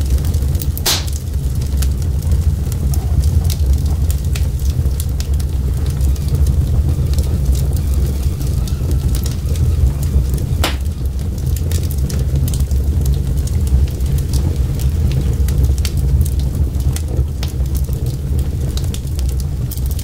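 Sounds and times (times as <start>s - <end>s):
fire crackling and popping: 0.0s - 20.0s
fire rumbling: 0.0s - 20.0s.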